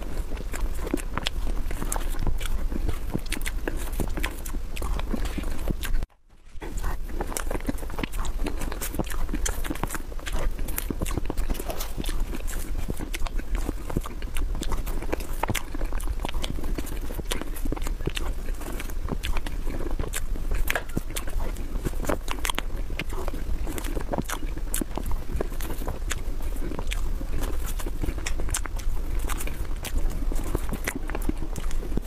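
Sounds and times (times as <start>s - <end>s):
sticky chewing clicks: 0.0s - 32.0s.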